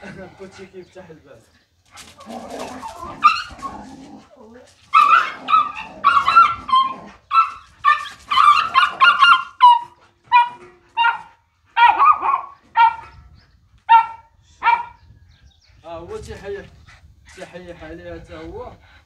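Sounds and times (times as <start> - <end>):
small dogs yapping: 1.9 - 4.2, 4.8 - 13.2, 13.9 - 15.0.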